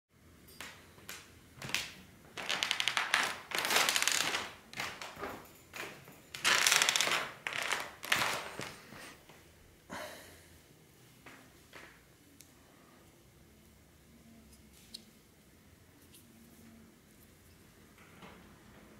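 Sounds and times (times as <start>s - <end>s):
rustling and crinkling handling: 1.1s - 9.2s.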